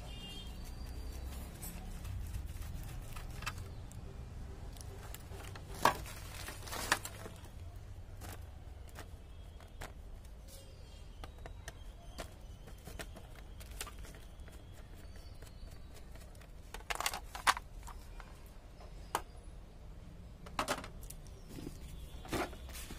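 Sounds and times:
plastic housing handled: 16.2 - 18.2.

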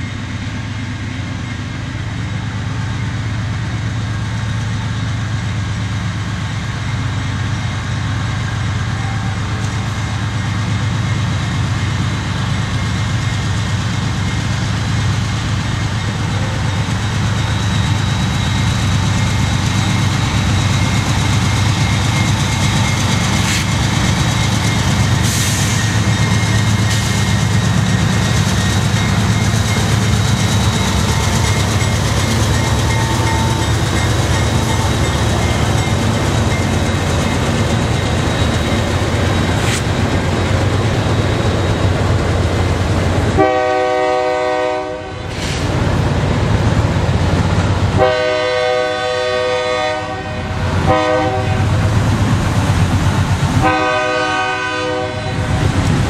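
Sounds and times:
diesel locomotive engines droning: 0.0 - 56.0.

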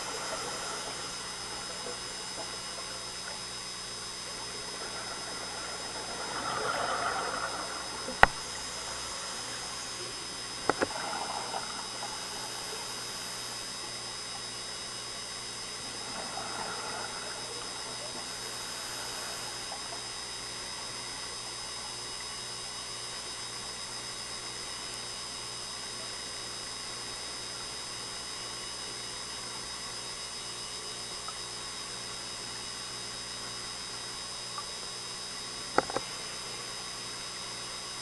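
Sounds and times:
exhaled bubbles gurgling: 0.0 - 23.9
steady hiss: 0.0 - 25.4.

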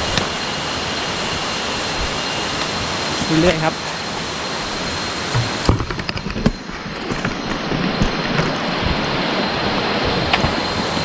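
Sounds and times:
steady rushing noise: 0.0 - 11.0
footsteps on a trail: 5.2 - 9.3.

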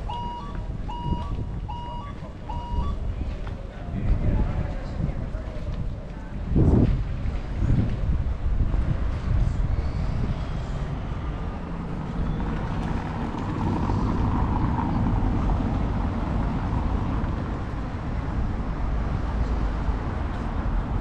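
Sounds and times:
street traffic noise: 0.0 - 21.0
vehicle passing: 9.5 - 21.0.

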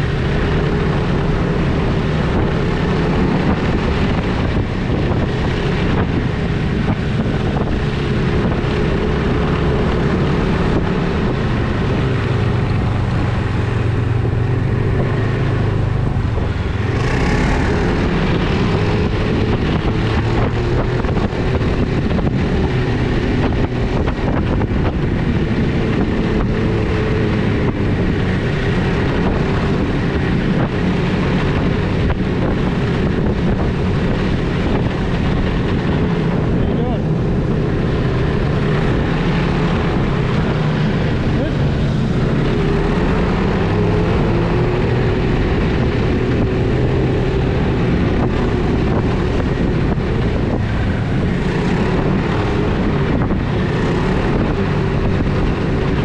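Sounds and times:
snowmobile engine running: 0.0 - 56.0
wind buffeting microphone: 0.0 - 56.0.

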